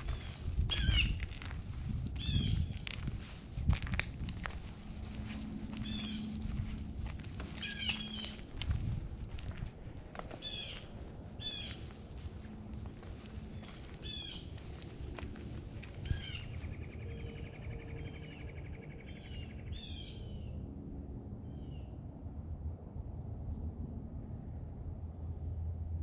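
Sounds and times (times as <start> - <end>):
wild birds calling: 0.0 - 1.2, 5.1 - 6.7, 7.4 - 9.0, 10.2 - 20.6
steady low rumble: 0.0 - 26.0.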